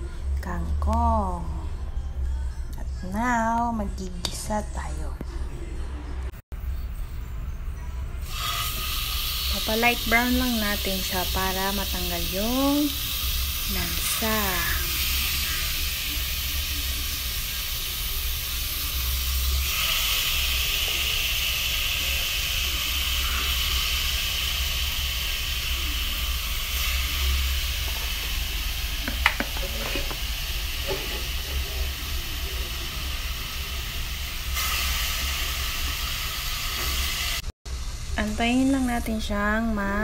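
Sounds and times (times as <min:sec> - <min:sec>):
meat sizzling in hot oil: 0:08.2 - 0:39.3.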